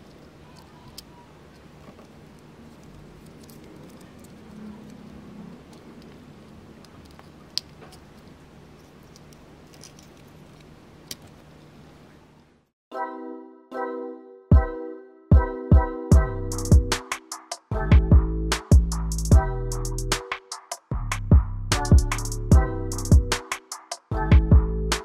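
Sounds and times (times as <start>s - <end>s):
plastic clicks and rubbing: 0.0s - 11.6s.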